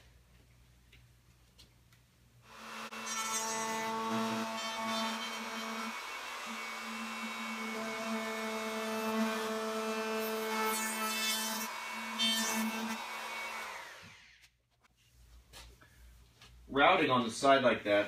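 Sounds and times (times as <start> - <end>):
router bit cutting wood: 2.5 - 14.4
router motor whine: 2.5 - 14.4.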